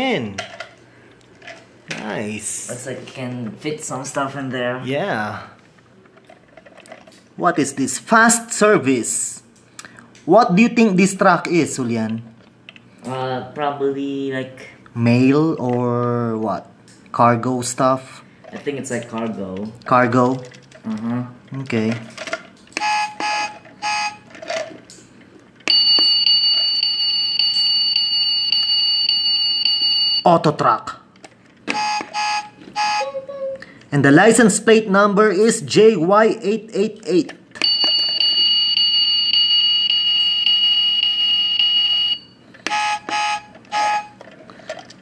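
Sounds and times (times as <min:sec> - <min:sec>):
electronic horn beeps: 0:22.8 - 0:24.3, 0:31.7 - 0:33.2, 0:37.6 - 0:44.2
high electronic alarm tone: 0:22.8 - 0:24.3, 0:25.7 - 0:30.3, 0:31.7 - 0:33.3, 0:37.6 - 0:44.2.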